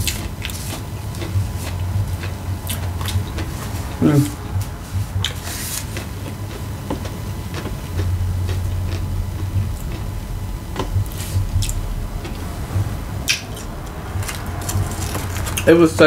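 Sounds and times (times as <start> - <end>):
person chewing food: 0.0 - 15.7
low rumble: 0.0 - 16.0.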